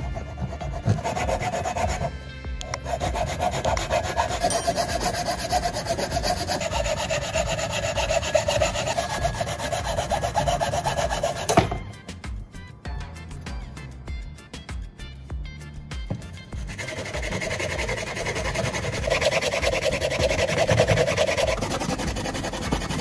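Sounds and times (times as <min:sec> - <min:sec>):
hacksaw cutting wood: 0:00.0 - 0:11.8, 0:16.6 - 0:23.0.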